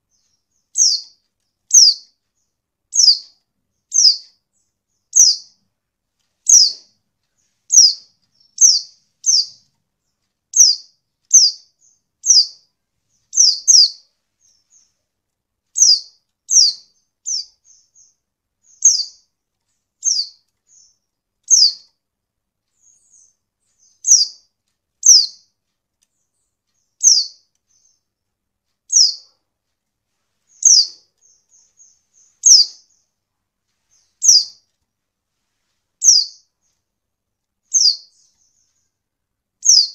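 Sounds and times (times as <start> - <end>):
bird high chirps: 0.0 - 5.7, 6.4 - 15.0, 15.7 - 19.4, 20.0 - 22.0, 22.7 - 28.2, 28.9 - 29.4, 30.5 - 33.2, 33.9 - 34.7, 36.0 - 36.8, 37.6 - 39.0, 39.6 - 39.9.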